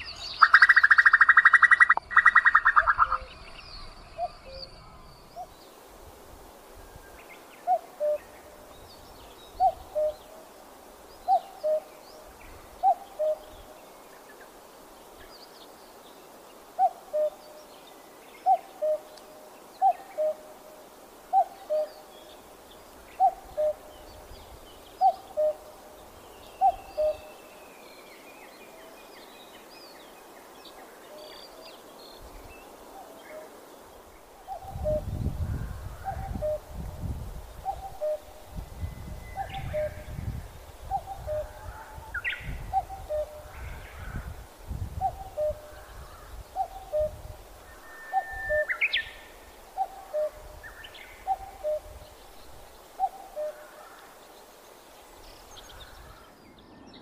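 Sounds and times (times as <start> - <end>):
cuckoo calling: 0.4 - 3.3, 7.6 - 8.8, 9.5 - 10.5, 11.2 - 13.8, 16.8 - 17.6, 18.4 - 20.6, 21.3 - 22.1, 23.2 - 24.2, 25.0 - 25.8, 26.5 - 27.6, 34.4 - 36.9, 37.6 - 43.9, 45.0 - 52.2, 53.0 - 54.0.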